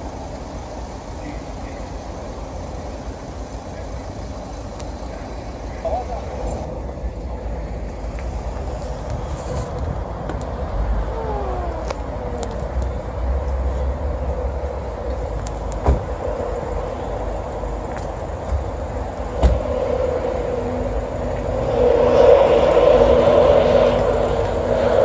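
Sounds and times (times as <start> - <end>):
falling whine: 0.0 - 18.2
vehicles running noise: 0.0 - 25.0.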